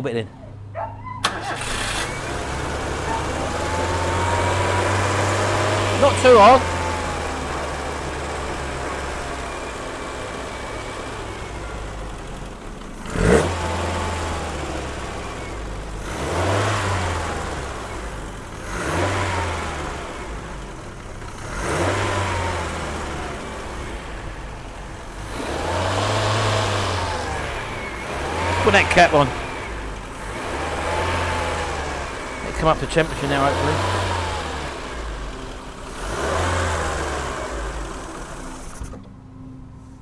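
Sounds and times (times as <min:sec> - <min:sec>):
car engine idling and revving: 0:00.0 - 0:40.0
person talking: 0:05.9 - 0:06.7, 0:28.5 - 0:29.4, 0:32.4 - 0:33.8.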